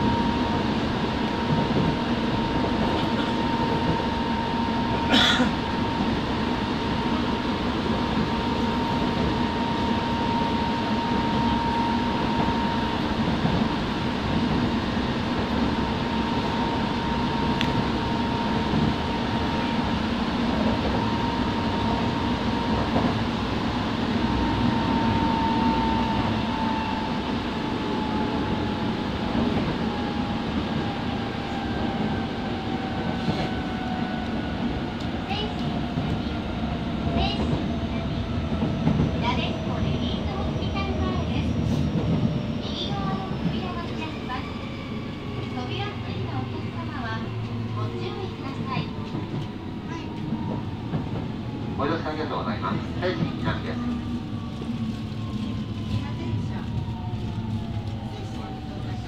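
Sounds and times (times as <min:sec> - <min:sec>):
train rumble and rail noise: 0:00.0 - 0:59.0.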